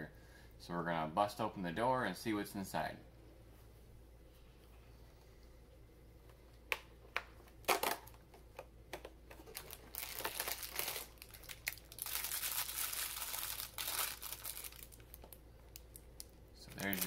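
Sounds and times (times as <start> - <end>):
plastic bag crinkling: 9.4 - 17.0.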